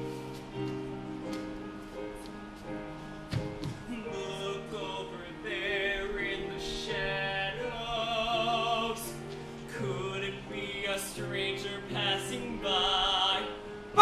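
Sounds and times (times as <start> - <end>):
instrumental accompaniment: 0.0 - 5.0
man singing with vibrato: 3.8 - 14.0.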